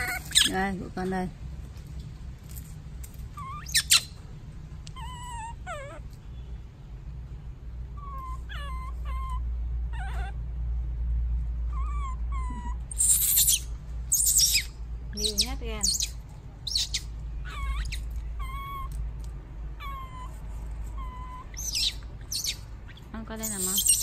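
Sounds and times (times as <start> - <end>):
baby monkey crying: 0.0 - 0.7, 3.3 - 4.2, 4.9 - 6.2, 8.0 - 10.4, 11.7 - 19.0, 19.7 - 24.0.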